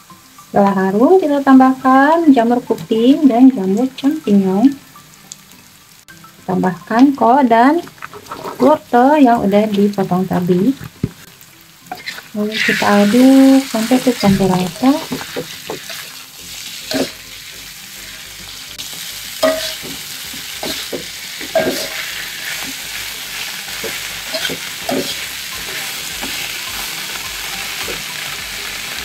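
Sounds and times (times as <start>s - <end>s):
vegetables sizzling in a wok: 0.0s - 29.0s
spatula scraping a wok: 7.9s - 8.8s, 11.9s - 17.3s, 18.0s - 27.0s.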